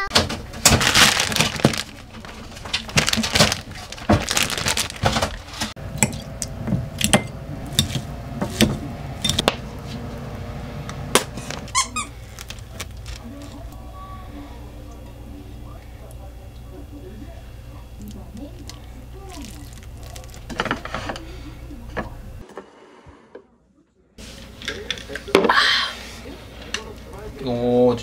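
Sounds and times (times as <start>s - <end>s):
plastic bag crinkling: 0.5s - 5.7s, 11.4s - 13.6s, 18.6s - 20.7s.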